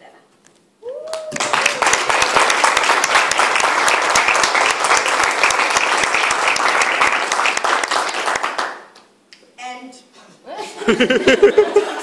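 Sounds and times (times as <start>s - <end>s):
crowd applauding: 1.1s - 9.0s.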